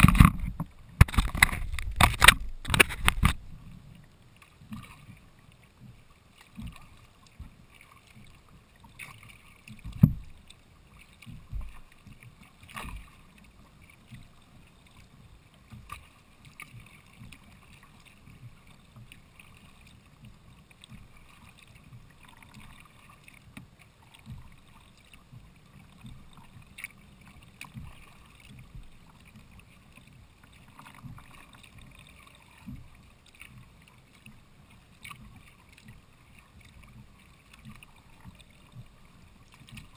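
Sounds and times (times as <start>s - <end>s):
paddle strokes in water: 0.0s - 39.9s
water lapping against hull: 0.0s - 39.9s
low knocks on hull: 9.8s - 10.4s, 11.3s - 11.8s.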